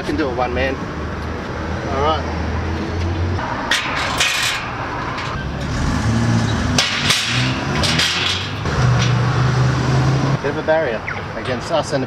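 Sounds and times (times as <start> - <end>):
road traffic: 0.0 - 12.0
metal tools clanking and scraping: 3.6 - 5.8, 6.4 - 9.4.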